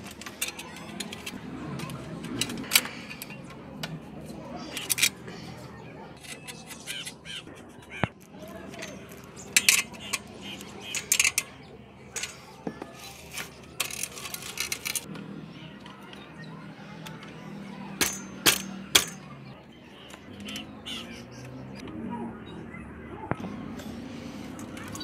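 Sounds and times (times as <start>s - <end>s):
metallic clinks of bicycle parts: 8.7s - 11.5s, 18.0s - 19.4s.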